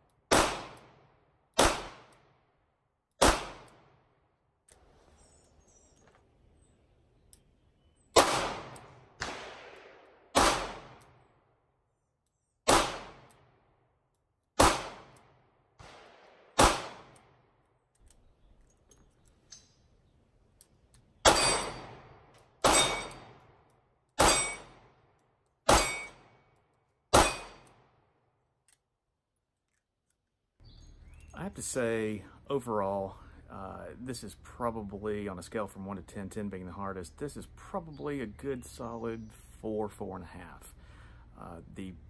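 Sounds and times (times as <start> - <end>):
faint clicks: 7.2 - 7.5, 17.1 - 19.8, 20.5 - 21.1.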